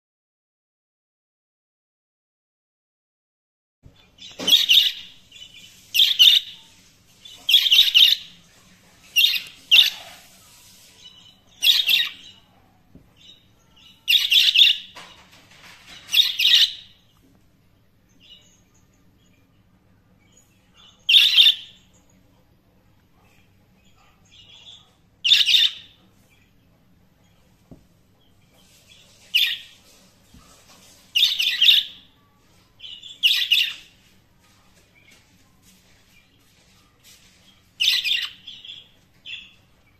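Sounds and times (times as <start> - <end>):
budgerigars chirping and warbling: 4.0 - 12.6, 13.2 - 17.0, 20.2 - 21.9, 23.2 - 26.6, 28.2 - 39.9
budgerigars chirping: 4.3 - 6.6, 7.3 - 8.3, 9.1 - 10.9, 11.6 - 12.4, 14.0 - 15.0, 16.0 - 16.9, 21.0 - 21.8, 24.4 - 26.0, 31.2 - 32.0, 33.2 - 33.9, 37.8 - 39.6.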